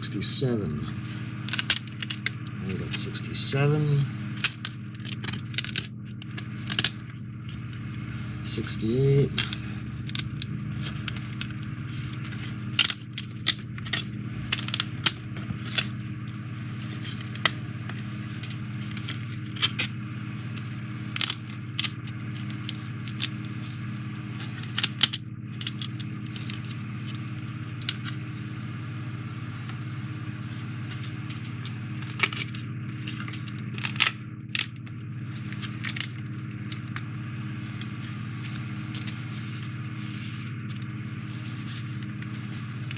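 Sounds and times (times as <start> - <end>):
steady low hum: 0.0 - 42.9
card pieces clicking and snapping: 1.5 - 3.2, 4.4 - 7.0, 9.4 - 11.7, 12.8 - 15.9, 21.1 - 23.8, 24.4 - 26.8, 31.0 - 37.0.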